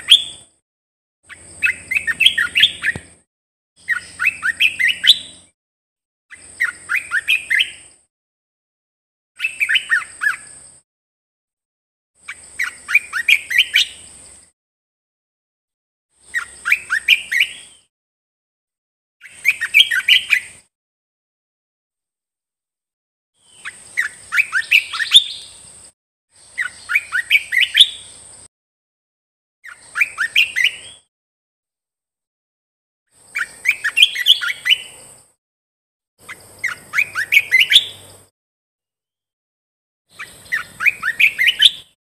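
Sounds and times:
bird singing: 0.0 - 0.5, 1.3 - 3.2, 3.8 - 5.5, 6.3 - 8.0, 9.4 - 10.8, 12.2 - 14.5, 16.2 - 17.9, 19.2 - 20.7, 23.4 - 28.5, 29.6 - 31.1, 33.2 - 35.3, 36.2 - 38.3, 40.1 - 42.0.

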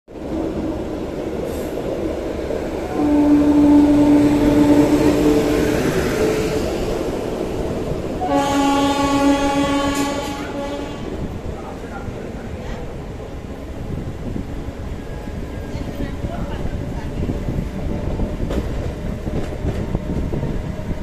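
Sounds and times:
rumble of moving trains: 0.1 - 21.0
locomotive horn blasts: 2.9 - 5.6, 8.2 - 11.2.

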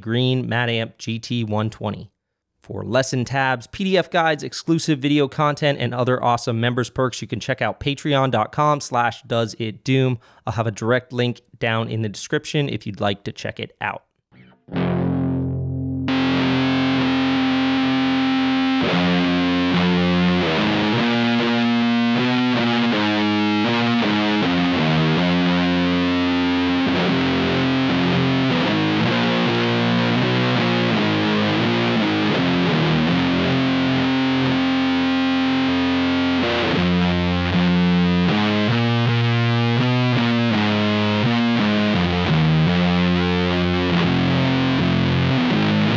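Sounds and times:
fuzzed electric guitar riff: 14.4 - 45.9.

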